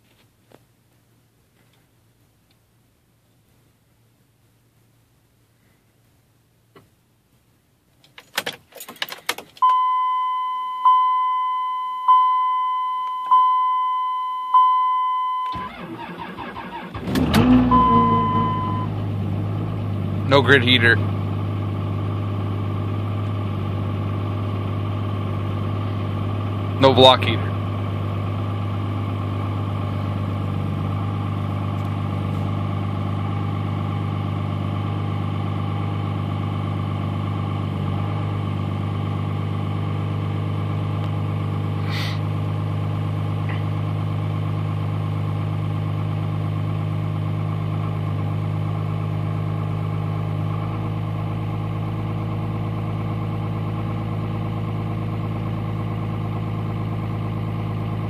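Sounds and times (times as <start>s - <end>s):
diesel engine idling: 15.5s - 58.0s.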